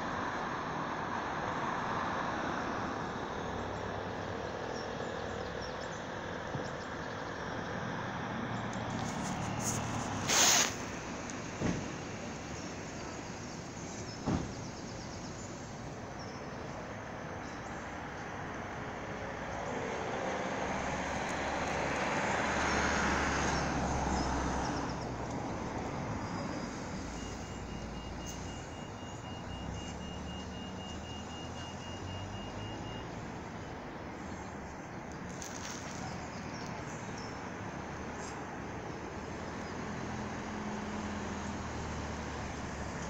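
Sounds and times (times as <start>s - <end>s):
traffic noise: 0.0s - 43.0s
vehicle passing: 7.4s - 12.8s, 18.5s - 28.0s.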